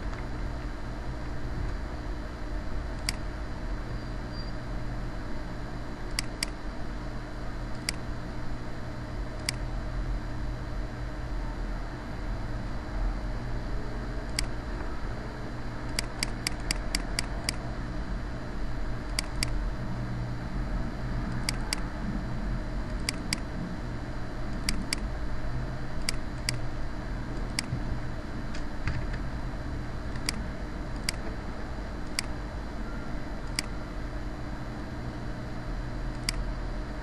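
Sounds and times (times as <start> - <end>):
low hum and hiss: 0.0 - 37.0
computer mouse clicking: 3.0 - 3.3, 6.1 - 6.6, 7.7 - 8.0, 9.4 - 9.6, 14.3 - 14.6, 15.9 - 17.6, 19.1 - 19.6, 21.3 - 21.9, 22.9 - 23.5, 24.5 - 25.1, 26.0 - 26.6, 27.4 - 27.7, 30.1 - 31.3, 32.0 - 32.4, 33.4 - 33.7, 36.1 - 36.4.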